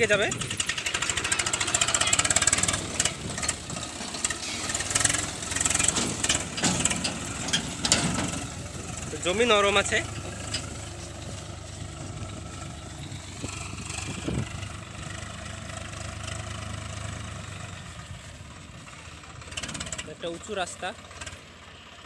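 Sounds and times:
tractor diesel engine running: 0.0 - 22.0.

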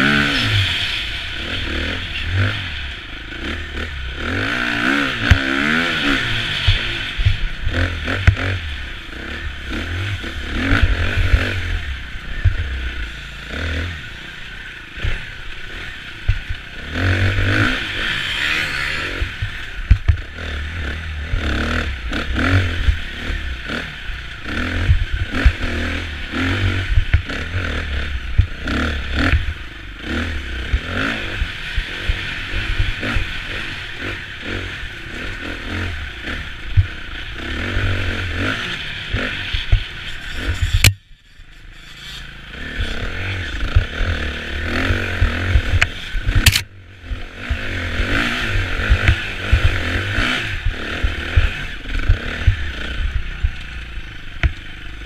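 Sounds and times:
motorcycle engine revving: 0.0 - 55.0
bike knocks and clatter: 19.4 - 20.2.

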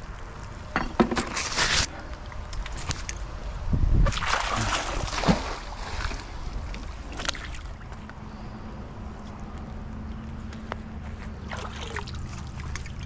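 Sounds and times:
magnet splashing into water: 4.0 - 6.2.

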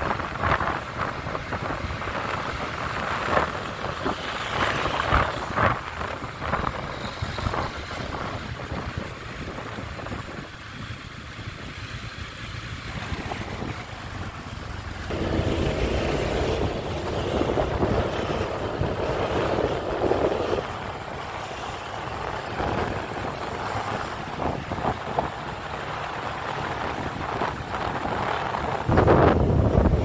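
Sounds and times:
engine running: 10.1 - 30.0.

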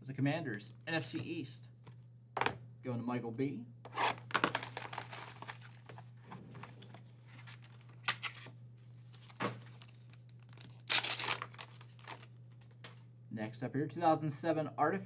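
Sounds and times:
steady low hum: 0.0 - 15.0
packaging crinkling and tearing: 3.9 - 6.1, 7.3 - 8.5, 9.1 - 12.8.

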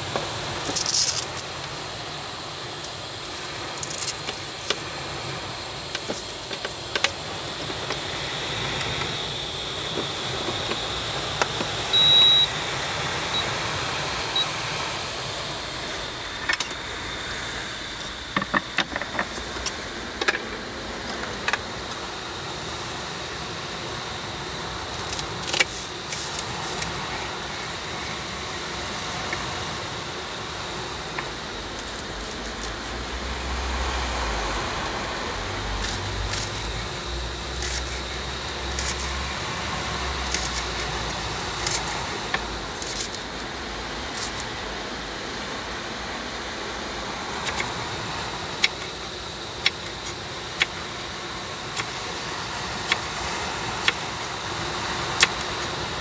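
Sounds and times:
rain hissing: 0.0 - 56.0
cooktop electronic beeps: 9.8 - 12.7, 13.3 - 13.6, 14.3 - 14.6
clicks and knocks of handling: 18.4 - 21.6.

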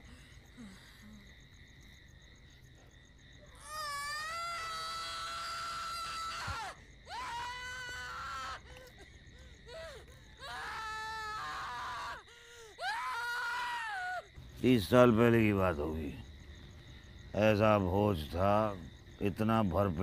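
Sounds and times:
woman wailing in pain: 3.6 - 14.3.

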